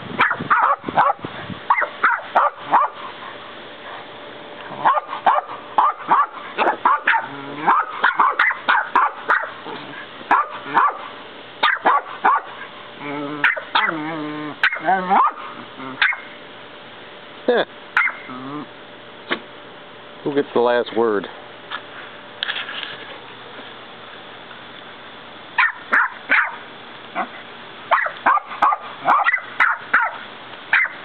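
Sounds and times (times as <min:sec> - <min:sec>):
puppy yapping: 0:00.2 - 0:03.0, 0:04.8 - 0:12.6, 0:13.2 - 0:16.3, 0:18.0 - 0:18.7, 0:25.6 - 0:26.6, 0:27.2 - 0:31.0.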